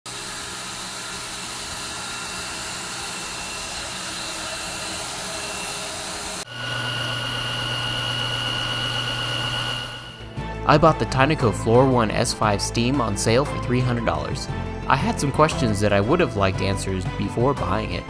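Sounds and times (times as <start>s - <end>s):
floor washer motor whirring: 0.1s - 10.3s
low hum: 6.4s - 10.3s.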